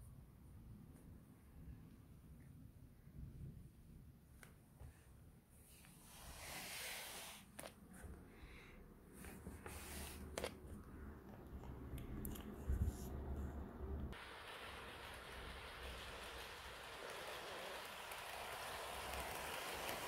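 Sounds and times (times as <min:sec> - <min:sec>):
steady hiss: 0:05.6 - 0:10.5, 0:14.1 - 0:20.0
model train rolling on track: 0:14.2 - 0:20.0
wheels clicking over rail joints: 0:16.2 - 0:20.0.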